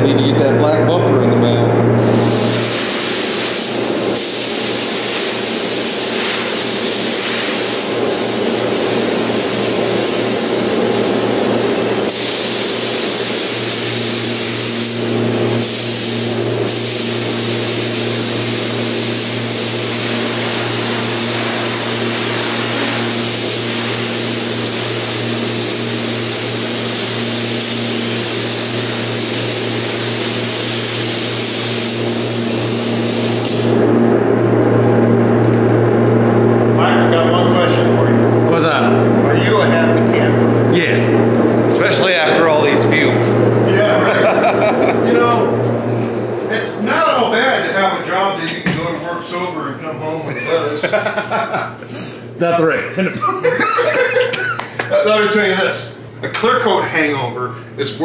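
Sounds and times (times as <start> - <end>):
steady low hum: 0.0 - 58.0
paint spray gun hissing: 2.0 - 33.8.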